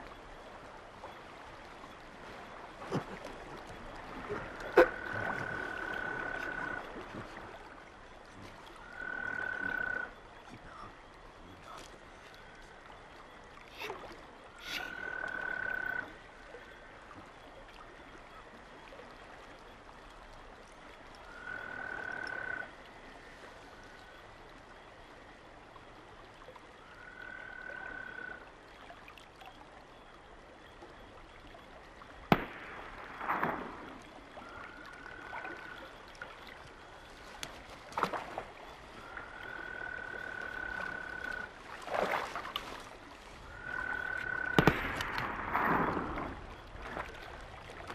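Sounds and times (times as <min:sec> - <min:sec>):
frog calling: 0:04.3 - 0:07.1, 0:08.8 - 0:12.8, 0:13.7 - 0:17.0, 0:21.2 - 0:22.9, 0:26.8 - 0:28.5, 0:34.2 - 0:41.6, 0:43.4 - 0:46.0.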